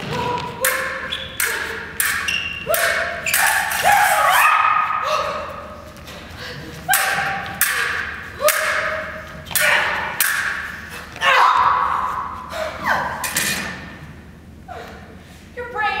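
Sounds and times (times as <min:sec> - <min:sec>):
swords clashing with echo: 0:00.1 - 0:05.4, 0:06.9 - 0:12.0.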